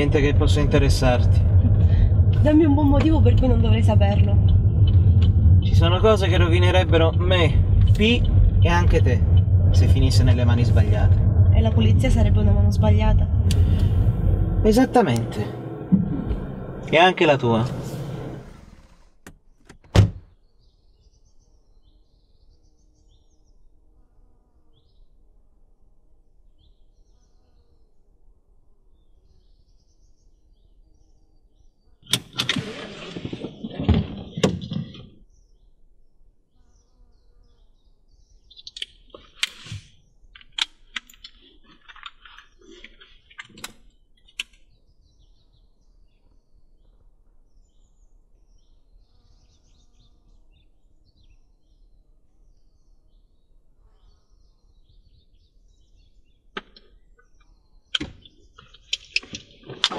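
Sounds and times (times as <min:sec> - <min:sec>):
car door shutting: 0:13.4 - 0:20.3
faint bird chirps: 0:36.5 - 0:39.4, 0:44.6 - 0:58.9.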